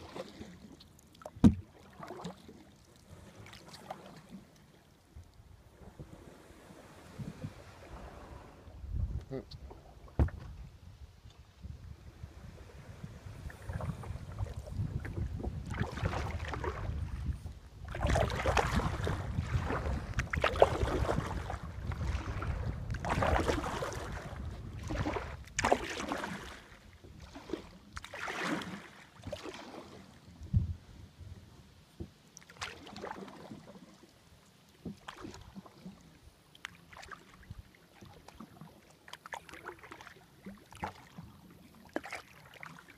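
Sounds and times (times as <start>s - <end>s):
paddle splashing in water: 0.0s - 9.0s, 9.6s - 10.7s, 12.2s - 30.8s, 31.9s - 42.9s
wind rumble on microphone: 5.2s - 26.3s, 30.3s - 32.1s.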